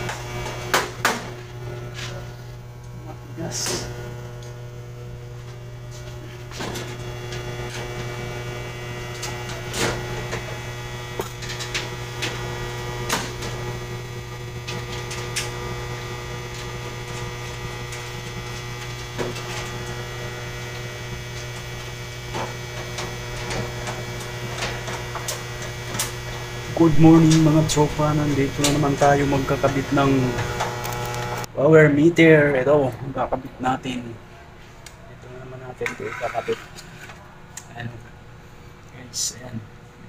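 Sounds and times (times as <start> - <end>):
electrical mains hum: 0.0 - 40.0.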